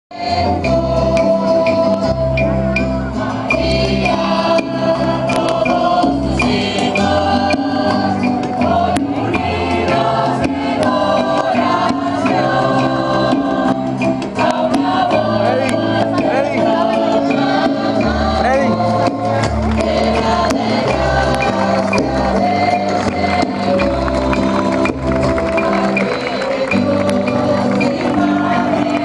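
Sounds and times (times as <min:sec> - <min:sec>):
choir singing a hymn: 0:00.1 - 0:29.0
repeating bass line: 0:00.2 - 0:29.0.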